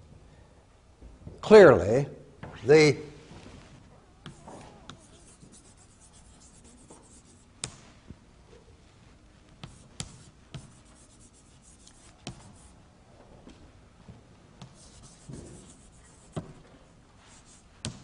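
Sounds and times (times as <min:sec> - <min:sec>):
chalk scratching on chalkboard: 0:04.3 - 0:07.5, 0:09.6 - 0:12.8, 0:14.6 - 0:16.6, 0:17.2 - 0:18.0
chalk tapping on board: 0:04.3 - 0:07.8, 0:09.6 - 0:12.7, 0:14.6 - 0:16.6, 0:17.3 - 0:18.0.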